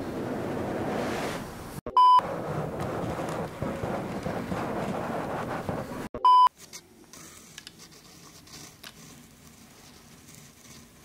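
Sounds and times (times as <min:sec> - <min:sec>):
short beep tone: 0:01.9 - 0:02.2, 0:06.2 - 0:06.5.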